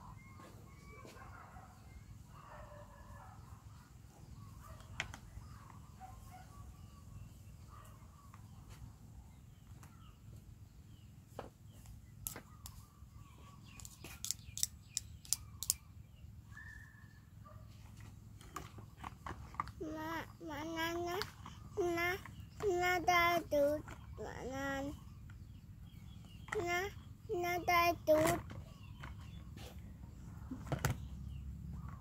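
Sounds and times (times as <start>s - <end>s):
plastic toys tapping and clicking: 13.8s - 15.8s, 26.4s - 29.4s.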